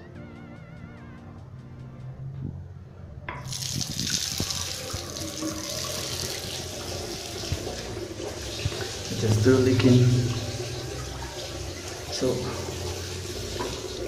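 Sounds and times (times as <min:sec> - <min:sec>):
basin tap turned on: 0:03.4 - 0:14.0
water running into washbasin drain: 0:03.4 - 0:14.0.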